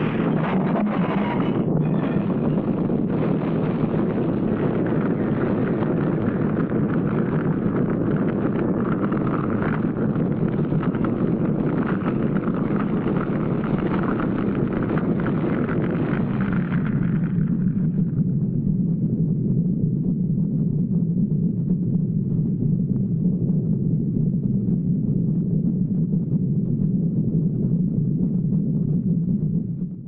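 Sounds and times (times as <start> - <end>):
explosion rumbling roar: 0.0 - 18.4.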